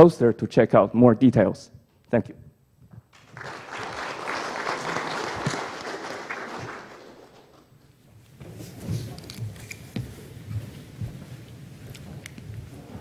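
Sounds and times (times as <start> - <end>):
applause: 3.1 - 7.7
footsteps: 6.6 - 13.0.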